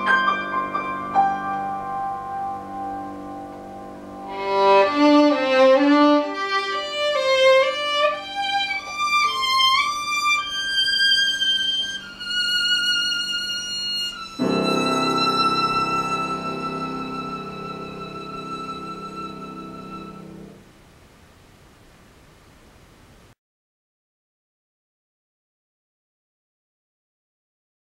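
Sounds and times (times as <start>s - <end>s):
piano accompaniment: 0.0s - 20.6s
solo violin melody: 4.2s - 20.6s.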